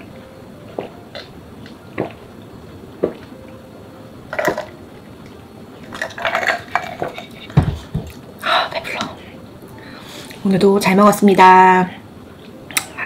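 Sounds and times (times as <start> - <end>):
person swallowing: 0.7 - 1.4.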